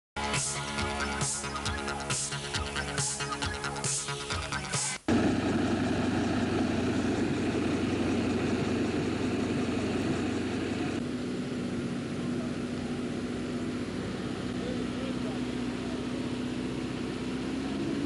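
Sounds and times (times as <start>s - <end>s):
fire engine running: 4.4s - 18.0s
steady hum: 5.0s - 17.2s.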